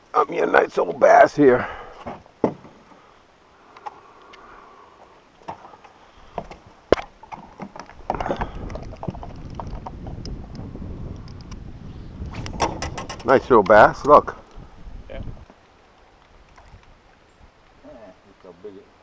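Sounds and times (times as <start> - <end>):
rattling and rumbling: 12.3 - 13.5
clicks and knocks in metal boat: 12.6 - 13.3.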